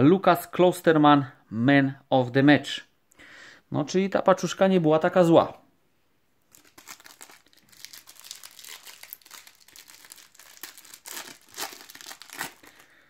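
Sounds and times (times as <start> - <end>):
plastic wrapper crinkling and tearing: 6.5 - 13.0.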